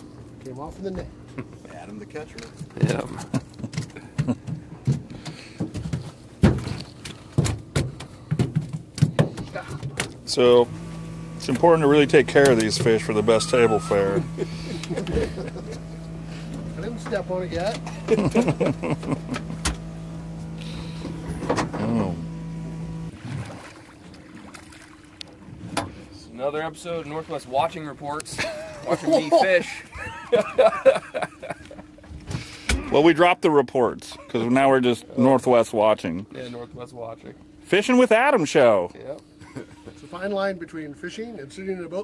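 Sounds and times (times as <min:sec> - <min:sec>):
outboard motor running: 0:00.8 - 0:27.2
thumps on metal boat deck: 0:02.8 - 0:10.1.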